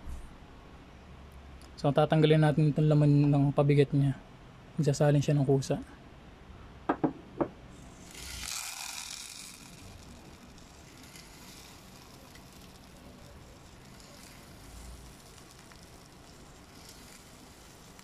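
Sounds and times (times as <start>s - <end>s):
dry pet food pouring into cup: 8.0s - 18.0s.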